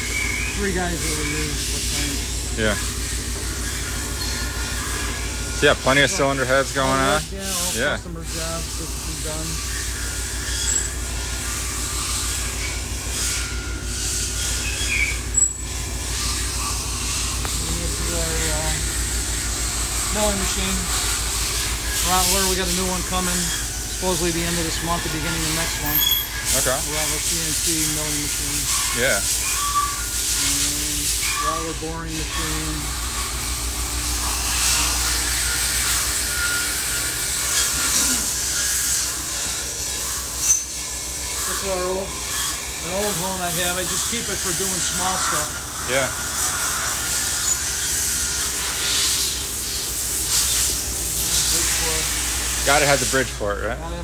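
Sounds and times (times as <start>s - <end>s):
high squeaks: 0.0s - 53.2s
equipment humming: 0.0s - 54.0s
hiss: 16.1s - 53.5s.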